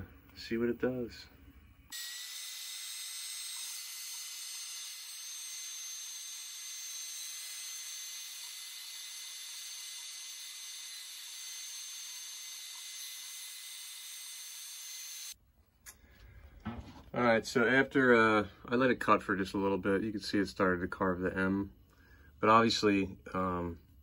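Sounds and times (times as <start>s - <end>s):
router spindle whining: 1.9s - 15.4s.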